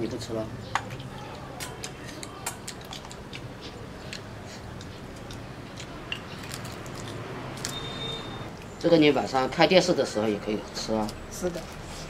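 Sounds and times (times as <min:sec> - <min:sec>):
crunching and chewing: 0:00.7 - 0:08.8, 0:10.9 - 0:12.0
chopsticks clicking against bowls: 0:00.8 - 0:06.6.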